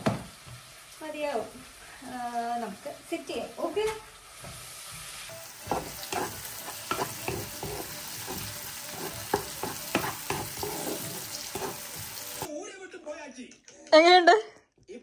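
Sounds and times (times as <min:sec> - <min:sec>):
onions sizzling in a frying pan: 0:00.0 - 0:12.5
spatula scraping and tapping a pan: 0:04.4 - 0:12.5.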